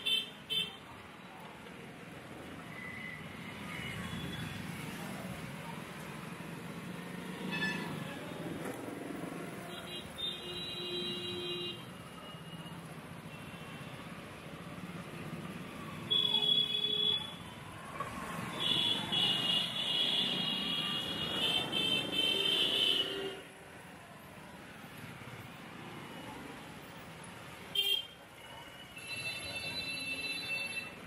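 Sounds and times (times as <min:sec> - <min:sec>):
street traffic: 0:00.0 - 0:31.0
vehicle horns honking: 0:07.5 - 0:08.0.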